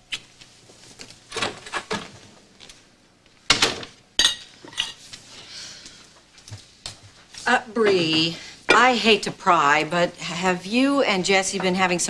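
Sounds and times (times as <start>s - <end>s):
dishes and cutlery clinking: 4.2s - 5.0s.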